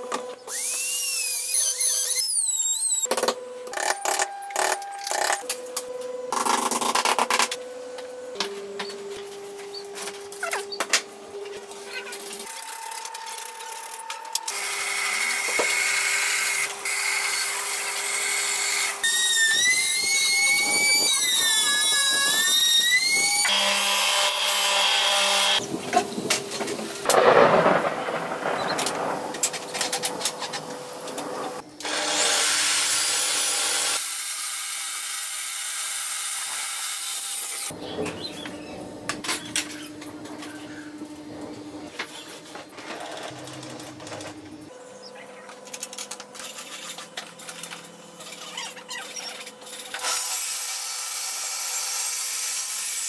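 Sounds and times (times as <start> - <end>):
power tools cutting wood: 0.0 - 3.1, 12.4 - 26.7, 31.0 - 37.8, 46.4 - 53.0
cutting tool whining: 0.0 - 5.6, 11.4 - 26.2, 31.8 - 37.8.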